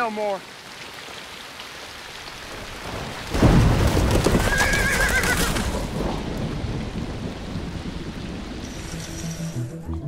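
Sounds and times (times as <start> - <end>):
horse whinnying: 4.3 - 5.7.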